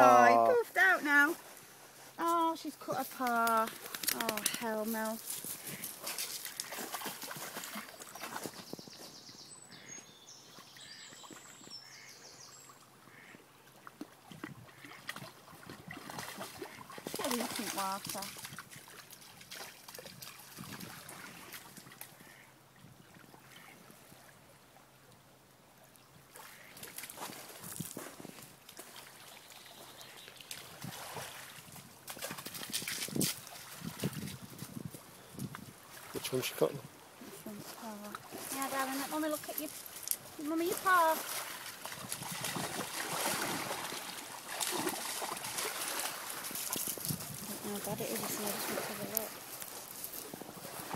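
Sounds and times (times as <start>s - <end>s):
dog splashing in water: 5.6s - 8.6s, 14.0s - 22.0s, 30.4s - 34.4s, 38.2s - 49.9s
footsteps on gravel: 46.2s - 50.8s.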